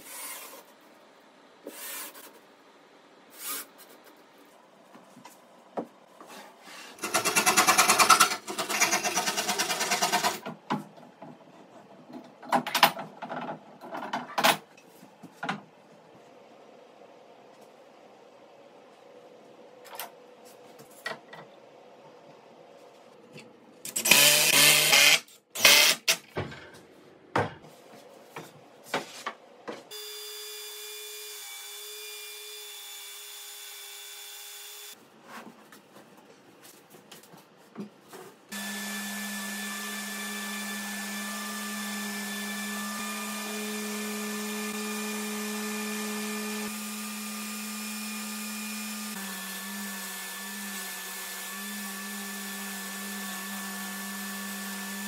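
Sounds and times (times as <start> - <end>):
drill driving screw into wood: 23.9 - 26.2.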